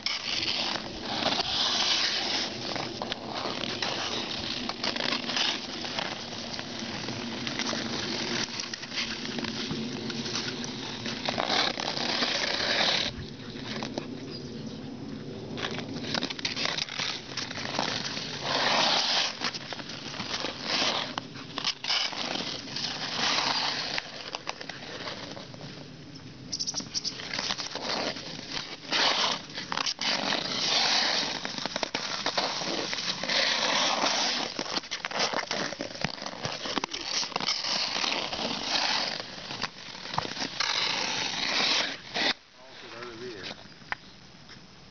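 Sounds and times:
ice skate blades scraping ice: 0:00.0 - 0:14.1, 0:15.4 - 0:43.6.

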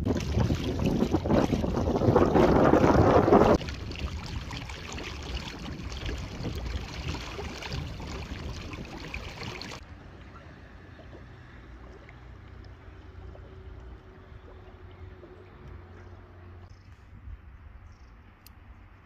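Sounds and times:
wind buffeting microphone: 0:00.0 - 0:09.8.

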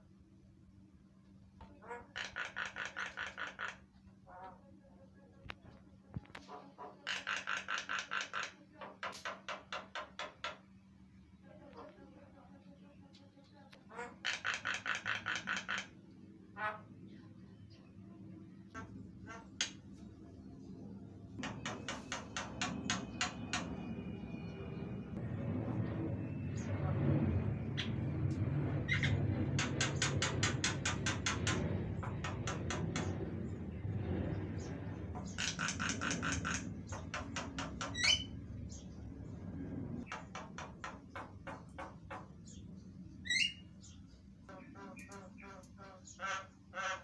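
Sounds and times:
low background rumble: 0:00.0 - 0:47.0
birds clicking calls: 0:01.6 - 0:04.2, 0:06.4 - 0:10.7, 0:13.8 - 0:16.8, 0:21.4 - 0:23.9, 0:28.8 - 0:33.7, 0:34.4 - 0:39.1, 0:40.0 - 0:47.0
mynas calling: 0:01.6 - 0:05.0, 0:06.4 - 0:09.8, 0:13.8 - 0:17.9, 0:35.1 - 0:38.9.

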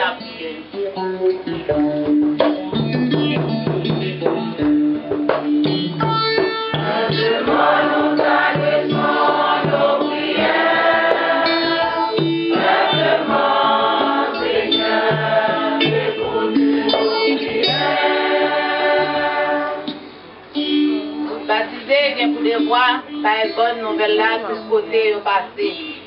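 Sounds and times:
instrumental accompaniment with beat: 0:00.0 - 0:23.4
choir and congregation singing hymn: 0:06.8 - 0:20.3.

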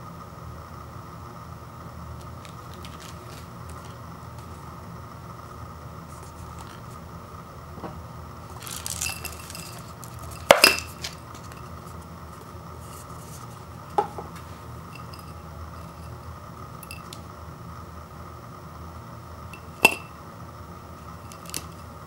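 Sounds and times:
paper cup rustling: 0:02.2 - 0:04.7, 0:06.1 - 0:07.0, 0:08.4 - 0:16.2
clatter on ceramic plate: 0:08.6 - 0:11.6.

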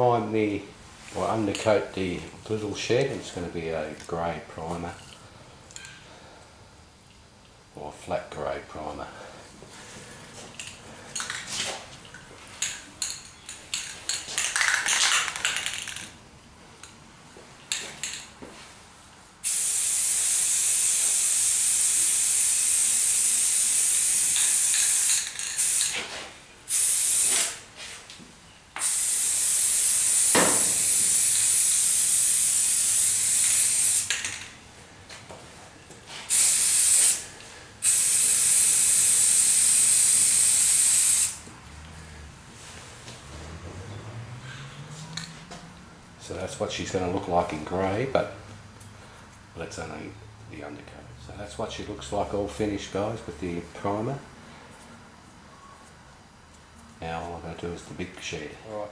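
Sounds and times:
aerosol spray can hissing: 0:19.4 - 0:26.0, 0:26.7 - 0:27.6, 0:28.8 - 0:34.2, 0:36.3 - 0:37.2, 0:37.8 - 0:41.4.

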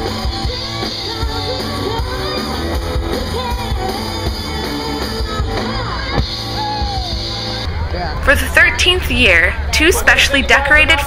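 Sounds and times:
woman singing: 0:00.0 - 0:06.5
live pop-rock band playing: 0:00.0 - 0:07.9.

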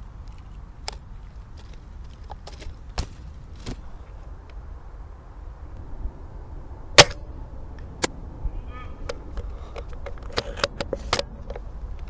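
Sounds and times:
low steady rumble: 0:00.0 - 0:12.0
rifle clicks and rattles: 0:00.2 - 0:02.9.

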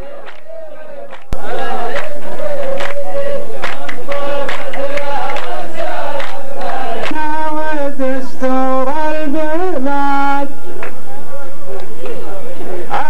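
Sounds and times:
men chanting in unison: 0:00.0 - 0:10.5, 0:11.6 - 0:13.0
hand claps: 0:00.2 - 0:00.5, 0:01.1 - 0:07.3, 0:10.8 - 0:11.0
man singing into a microphone: 0:07.1 - 0:10.6, 0:12.6 - 0:13.0.

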